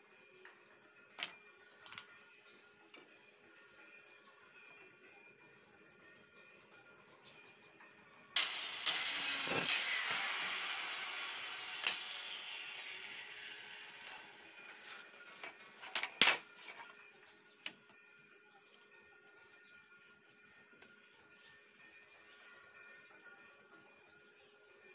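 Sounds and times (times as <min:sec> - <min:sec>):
power tool running on plywood: 0:08.4 - 0:14.7.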